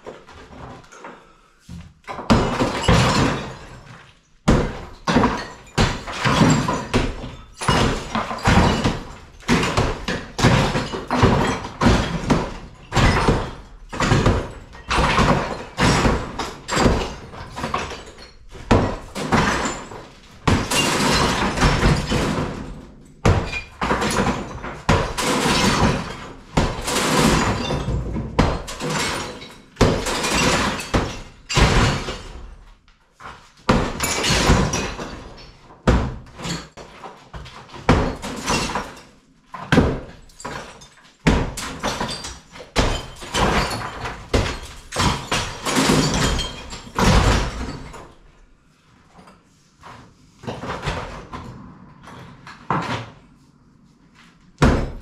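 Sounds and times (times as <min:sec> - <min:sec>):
crumbling plaster and masonry: 0:00.0 - 0:55.0.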